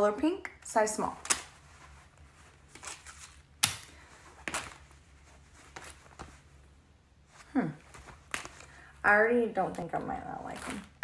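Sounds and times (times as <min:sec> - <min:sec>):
fabric rustling: 0:01.0 - 0:09.0
fabric snapping: 0:01.2 - 0:01.9, 0:02.6 - 0:04.9, 0:07.9 - 0:08.7.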